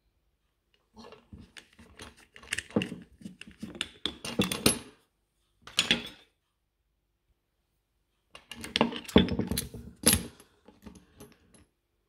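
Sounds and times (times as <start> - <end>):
screwdriver metallic clicks and rattles: 1.6 - 4.7.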